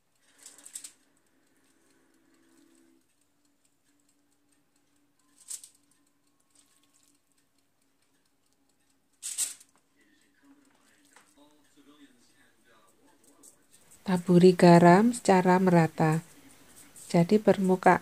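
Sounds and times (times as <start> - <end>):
aluminium foil crinkling: 0.0 - 1.8, 5.1 - 8.2, 9.2 - 11.5
faint steady hum: 0.0 - 18.0.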